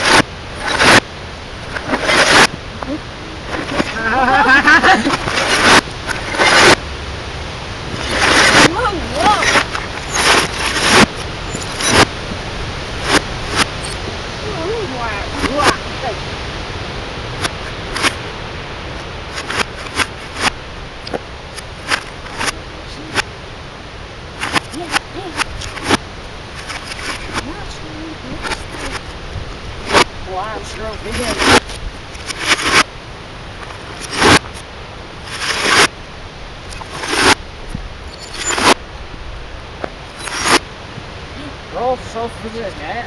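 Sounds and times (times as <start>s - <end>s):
reversed glass and plastic crackle: 0.0s - 2.6s, 3.5s - 6.8s, 7.9s - 14.0s, 17.4s - 18.2s, 18.9s - 23.3s, 24.3s - 36.0s, 36.6s - 37.4s, 38.0s - 38.8s, 40.0s - 40.7s
steady hiss: 0.0s - 43.0s.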